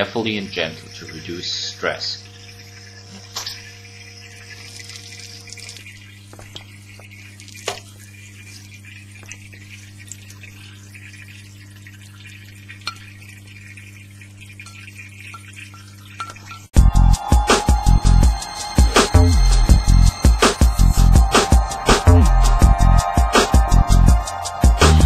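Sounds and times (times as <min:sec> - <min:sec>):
aquarium water trickling: 0:00.0 - 0:16.8.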